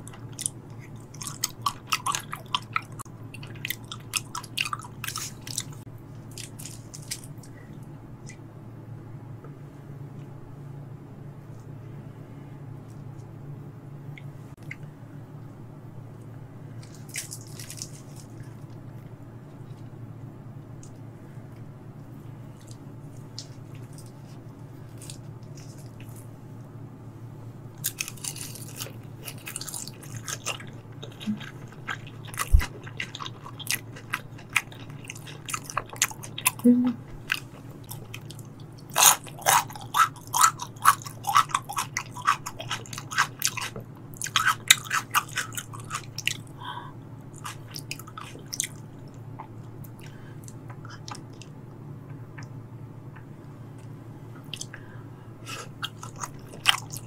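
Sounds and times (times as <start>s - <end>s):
wet chewing clicks and crunches: 0.0s - 7.6s, 16.8s - 18.9s, 24.9s - 26.3s, 27.8s - 46.6s, 47.2s - 54.8s, 55.5s - 57.0s
low steady hum: 0.0s - 57.0s.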